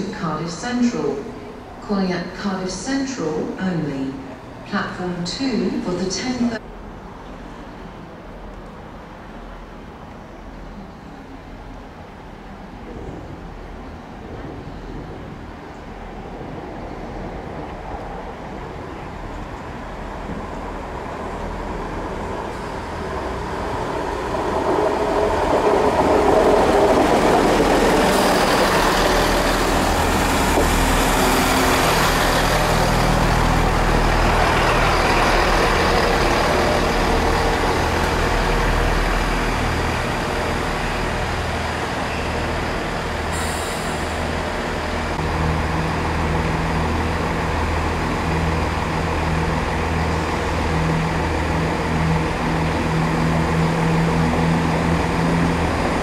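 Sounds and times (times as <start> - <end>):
diesel train passing: 0.0 - 56.0
train wheels on rails: 12.6 - 56.0.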